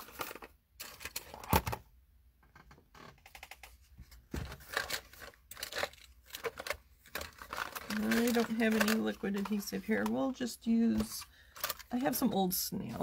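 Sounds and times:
items clicking and knocking in drawer: 3.1 - 10.2
paper rustling: 3.3 - 10.2.

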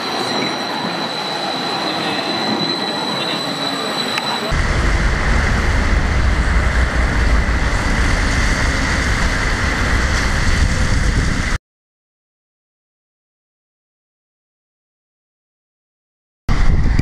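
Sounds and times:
tram running: 0.0 - 11.6
tram wheel squeal: 0.0 - 11.6
wind buffeting microphone: 4.5 - 11.6, 16.5 - 17.0.

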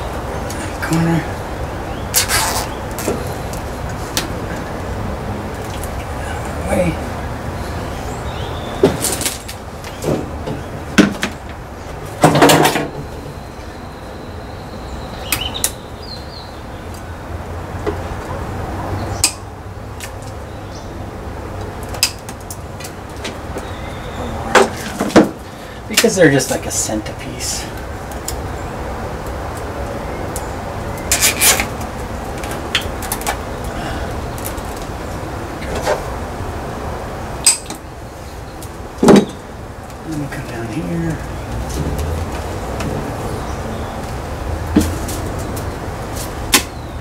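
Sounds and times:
low background noise: 0.0 - 47.0.

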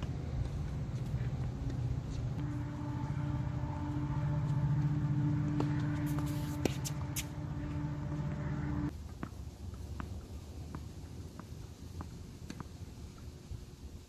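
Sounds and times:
low mechanical drone: 0.0 - 11.3
tennis ball struck by rackets: 5.5 - 7.4.

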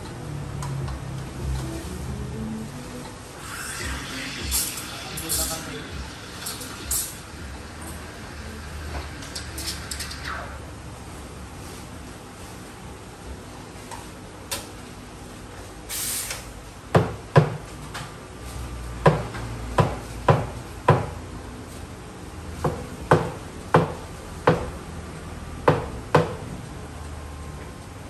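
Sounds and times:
low machine hum: 0.0 - 15.9
brief hiss: 3.4 - 7.2, 15.9 - 16.5.

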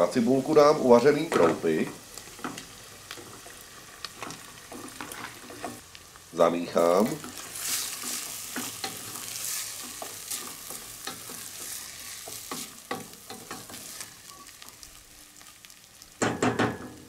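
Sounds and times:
onion sizzling in pot: 0.0 - 17.0.

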